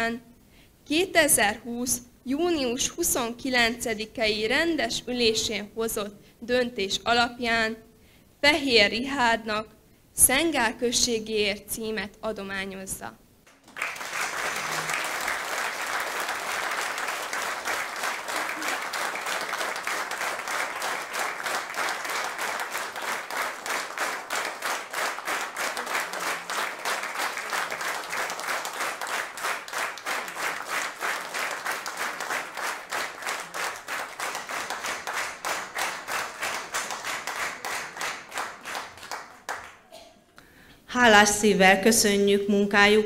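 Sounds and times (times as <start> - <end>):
audience applauding: 13.5 - 39.9.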